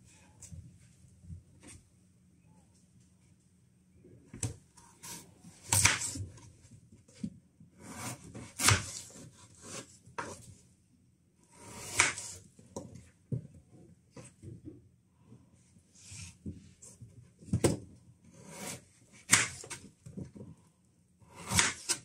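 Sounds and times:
knife cutting potatoes on board: 5.0 - 6.3, 7.8 - 10.5, 11.5 - 12.5, 17.6 - 20.3, 21.3 - 22.0.

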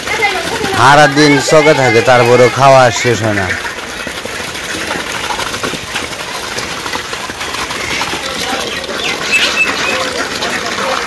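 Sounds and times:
duck bills clattering on metal bowl: 0.0 - 11.0.

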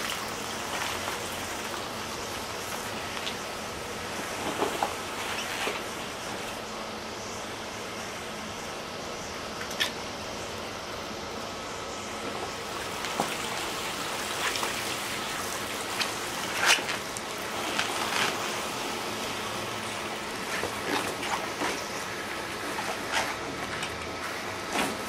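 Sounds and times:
water sloshing and trickling: 0.0 - 6.7, 12.3 - 25.0
steady hiss: 0.0 - 25.0.

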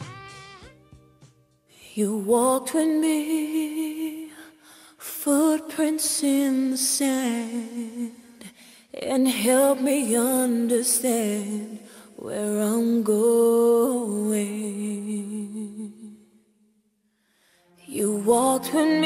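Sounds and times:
person singing slow melody: 17.6 - 19.0.

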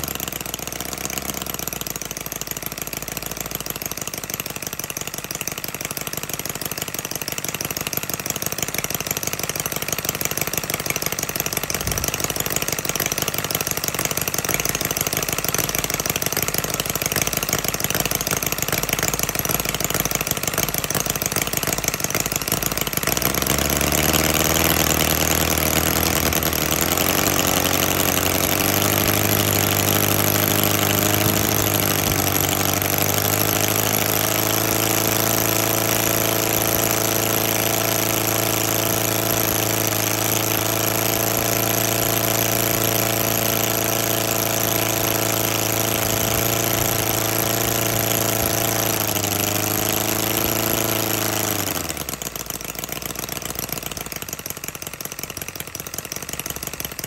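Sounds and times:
model aero engine running: 0.0 - 57.0.

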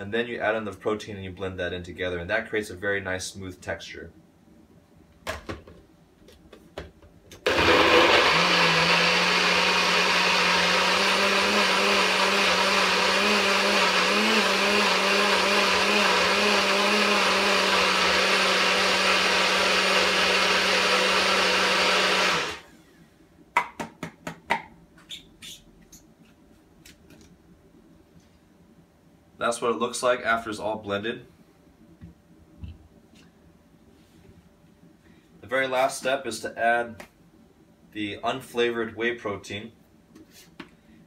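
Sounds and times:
blender running: 7.4 - 22.7.

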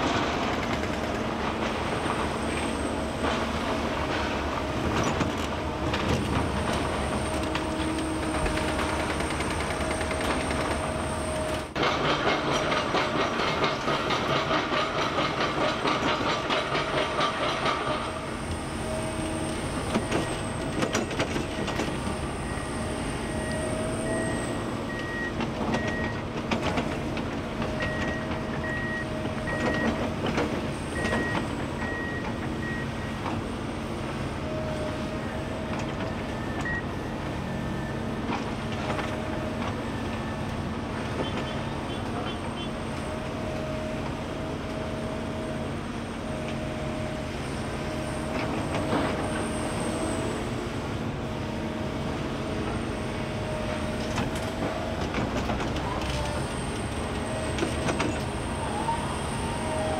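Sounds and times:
excavator engine running: 0.0 - 59.9.

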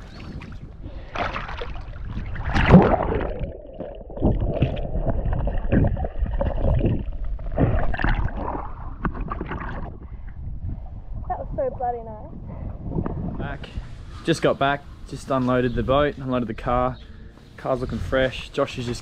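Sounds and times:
sea water splashing: 0.0 - 10.3
muffled underwater gurgling: 0.0 - 13.5.

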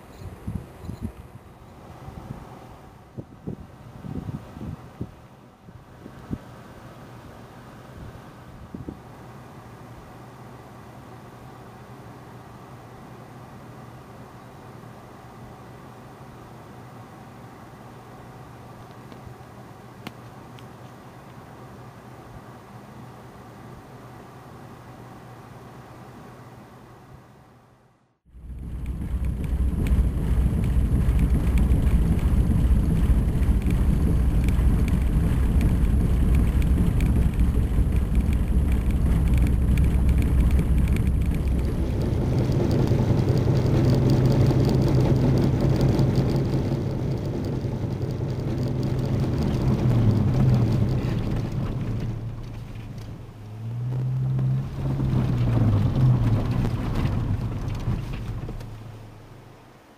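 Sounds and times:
car engine and tyre noise: 28.3 - 59.9.

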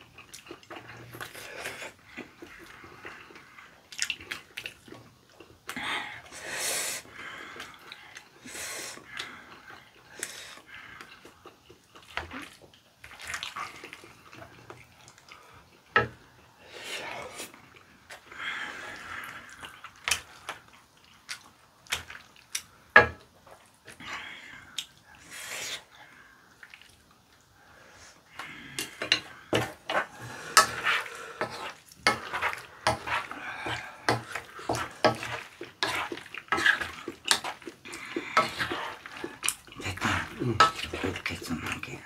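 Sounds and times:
chewing and slurping: 0.0 - 5.7, 7.5 - 15.9, 28.4 - 42.0.

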